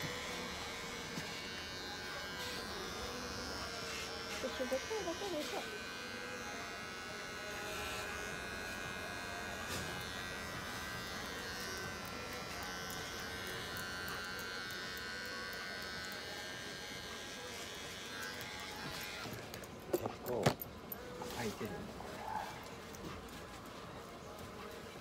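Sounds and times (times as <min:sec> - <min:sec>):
electric hair clippers buzzing: 0:00.0 - 0:19.7.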